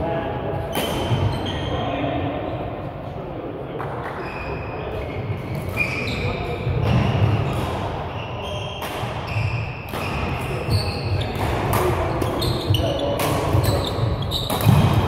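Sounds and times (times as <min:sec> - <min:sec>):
voices in background: 0:00.0 - 0:15.0
shoes squeaking on floor: 0:00.7 - 0:02.0, 0:04.2 - 0:14.9
racket striking shuttlecock: 0:11.3 - 0:12.6, 0:13.2 - 0:15.0.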